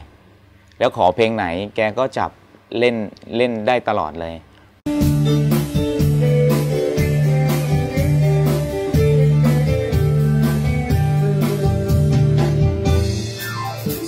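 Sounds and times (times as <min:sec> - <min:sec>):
live band playing: 0:04.9 - 0:14.0.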